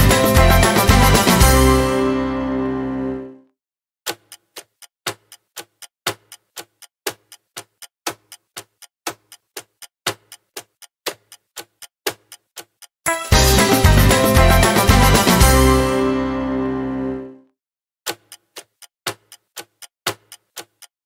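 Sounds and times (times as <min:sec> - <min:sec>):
music: 0:00.0 - 0:03.5, 0:13.1 - 0:17.5
clock ticking: 0:04.1 - 0:15.5, 0:18.1 - 0:21.0.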